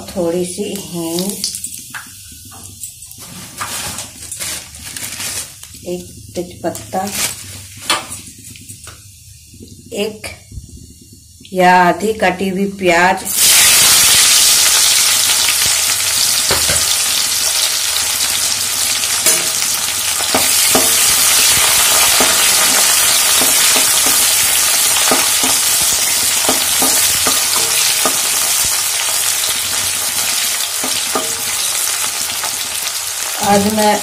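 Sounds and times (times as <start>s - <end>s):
onions sizzling in hot oil: 0.0s - 34.0s.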